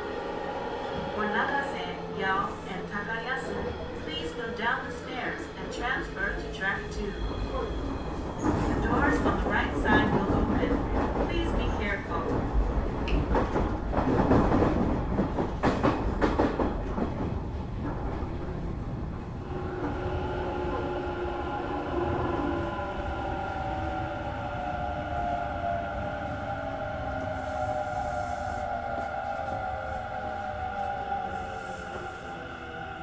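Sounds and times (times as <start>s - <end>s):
train wheels clattering over rails: 8.2s - 18.6s.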